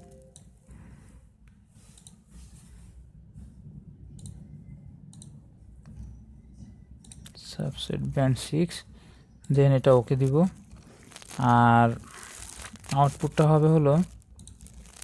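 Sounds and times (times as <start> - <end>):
low steady hum: 0.0 - 15.0
computer mouse clicks: 4.2 - 4.4, 5.1 - 5.4.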